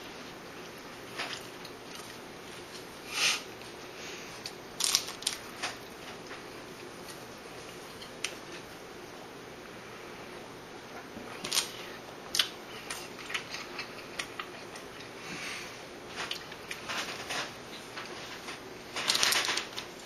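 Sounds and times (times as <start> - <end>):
steady room noise: 0.0 - 20.0
person chewing: 11.3 - 15.2.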